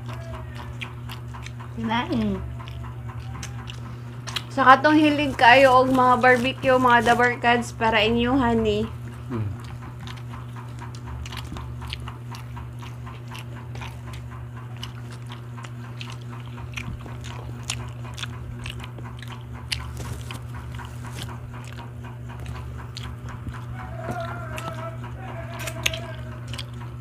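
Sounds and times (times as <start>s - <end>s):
people chewing food: 0.0s - 27.0s
steady low hum: 0.0s - 27.0s
mouth clicks and smacks: 9.0s - 27.0s.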